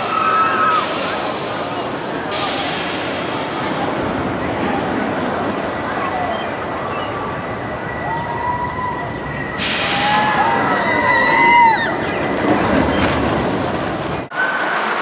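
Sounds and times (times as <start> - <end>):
riders screaming: 0.0 - 0.9, 8.0 - 12.3
sharp hiss: 0.0 - 4.0, 9.6 - 10.3
roller coaster rumbling past: 0.0 - 15.0.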